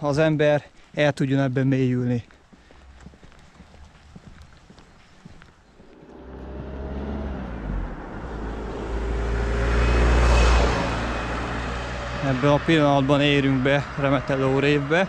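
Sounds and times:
vehicle driving past: 0:05.8 - 0:15.0.

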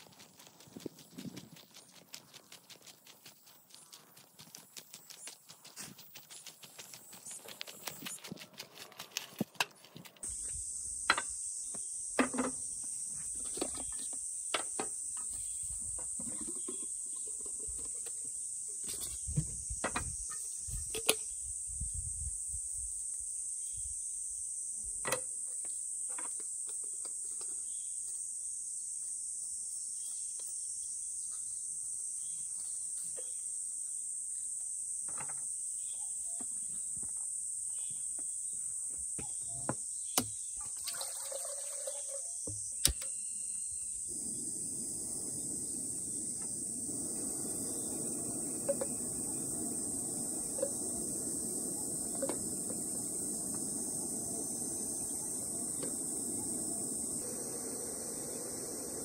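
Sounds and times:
footsteps on gravel: 0:00.0 - 0:10.3
insects singing: 0:33.2 - 0:59.0.

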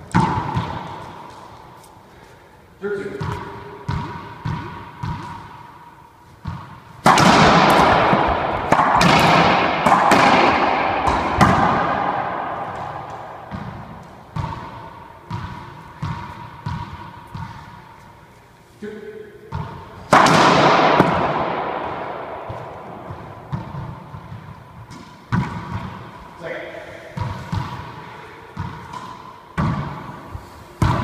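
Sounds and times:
racquet striking ball: 0:00.0 - 0:01.9, 0:03.2 - 0:18.0, 0:19.5 - 0:31.0
ball bouncing on floor: 0:00.1 - 0:01.4, 0:03.2 - 0:05.6, 0:06.4 - 0:17.8, 0:19.5 - 0:26.0, 0:28.6 - 0:30.1, 0:30.8 - 0:31.0.

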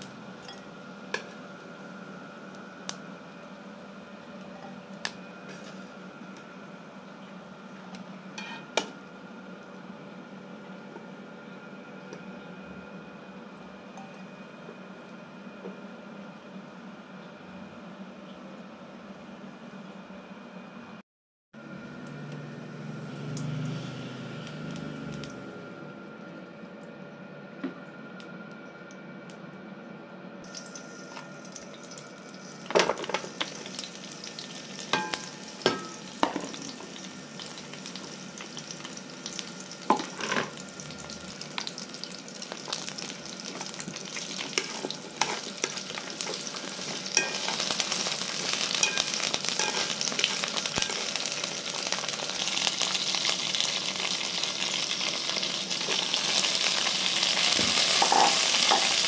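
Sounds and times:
meat sizzling in hot oil: 0:30.5 - 0:59.0.

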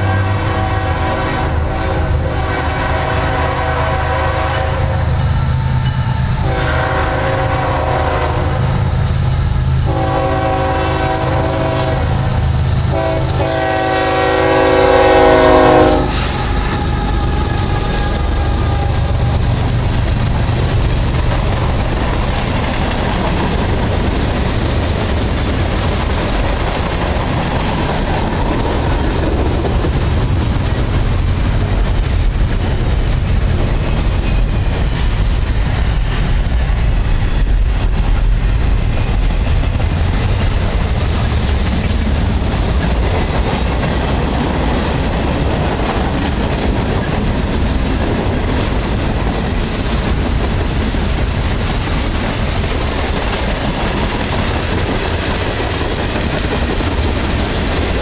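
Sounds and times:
locomotive horn blasts: 0:00.0 - 0:05.2, 0:05.8 - 0:08.7, 0:09.8 - 0:12.3, 0:12.9 - 0:19.4
train wheels on rail: 0:00.0 - 0:58.0.

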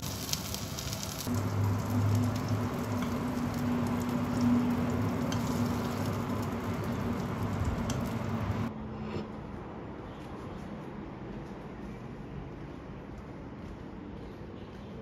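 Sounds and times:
food sizzling in frying pan: 0:00.0 - 0:08.7.

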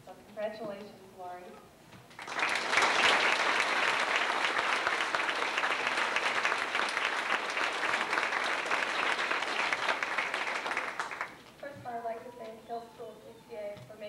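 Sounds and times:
audience applauding: 0:02.1 - 0:11.5.

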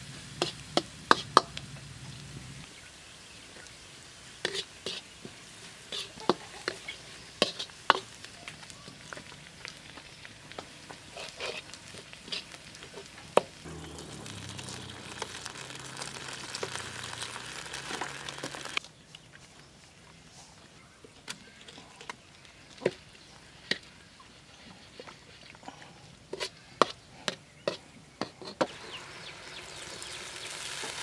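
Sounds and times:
oil sizzling in a wok: 0:00.0 - 0:18.8, 0:28.7 - 0:31.0
spatula scraping and tapping pan: 0:00.4 - 0:01.6, 0:07.4 - 0:08.2, 0:26.3 - 0:28.7.

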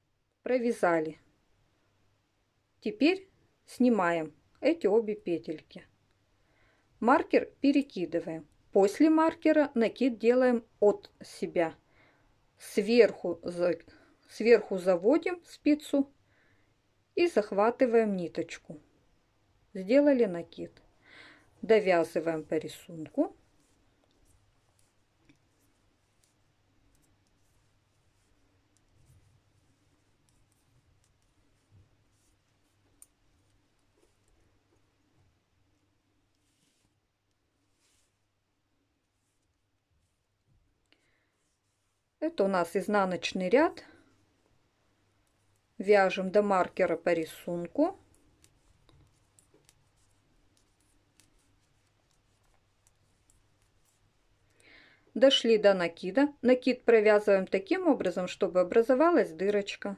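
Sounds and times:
knitting needles clicking: 0:22.8 - 0:36.6, 0:45.1 - 0:54.6.

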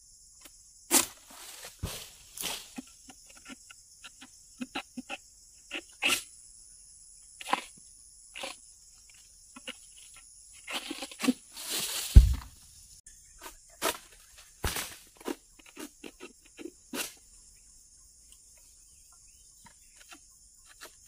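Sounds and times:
rustling crash of fronds: 0:00.9 - 0:02.7, 0:11.6 - 0:12.6
heavy thud on ground: 0:12.0 - 0:12.6.

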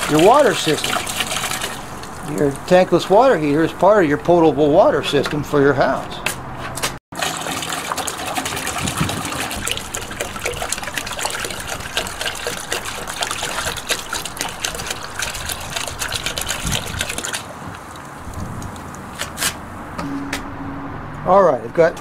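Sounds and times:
liquid pouring and splashing into pail: 0:00.0 - 0:03.0, 0:07.1 - 0:18.8.

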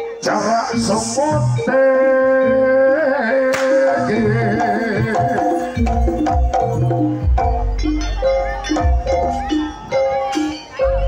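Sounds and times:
wavering bending melody: 0:00.0 - 0:11.0
hand drums: 0:03.6 - 0:11.0.

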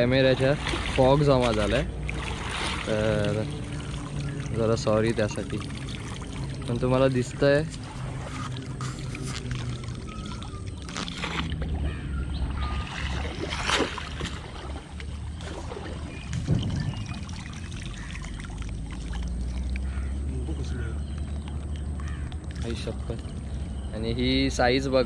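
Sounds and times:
water splash: 0:00.0 - 0:20.3
water sloshing around legs: 0:00.0 - 0:23.9
water dripping from net: 0:00.6 - 0:11.9, 0:12.8 - 0:20.4.

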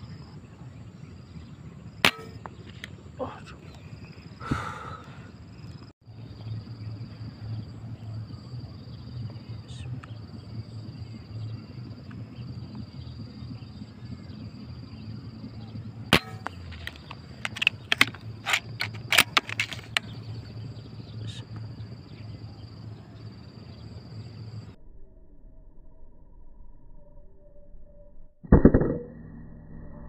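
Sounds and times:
low rumble: 0:00.0 - 0:18.8
high insect drone: 0:00.0 - 0:24.8
air rifle shot: 0:16.1 - 0:16.6.

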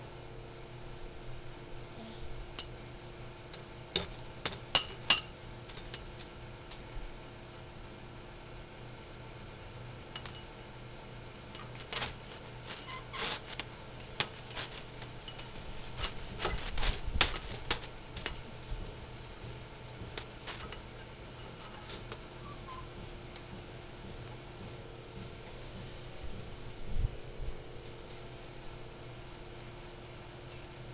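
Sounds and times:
fork clinking against ceramic bowl: 0:04.0 - 0:06.0, 0:10.2 - 0:10.5, 0:11.6 - 0:17.9, 0:20.2 - 0:23.0.

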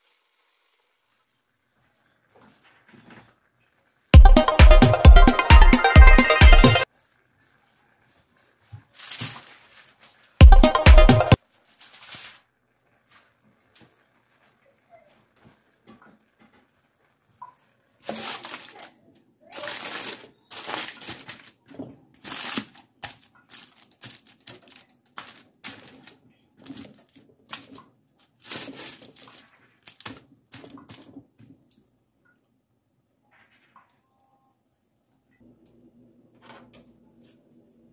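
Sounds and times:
aluminium foil crinkling: 0:07.0 - 0:10.4, 0:11.4 - 0:31.2.

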